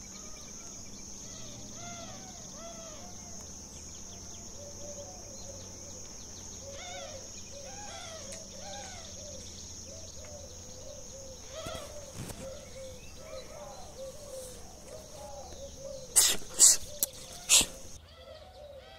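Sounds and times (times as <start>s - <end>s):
high insect drone: 0.0s - 18.9s
capybara calling: 11.2s - 18.9s.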